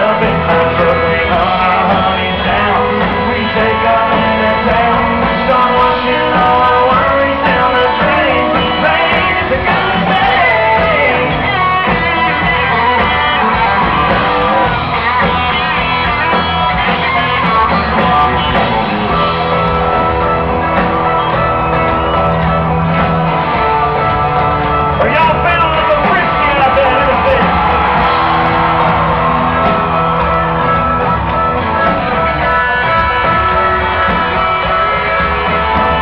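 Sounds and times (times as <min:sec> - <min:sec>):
electric guitars: 0:00.0 - 0:36.0
live country band playing: 0:00.0 - 0:36.0.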